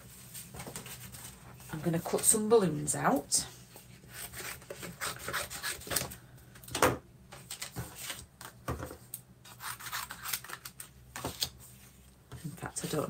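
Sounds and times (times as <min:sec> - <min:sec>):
card rustling and sliding: 0:07.4 - 0:08.6.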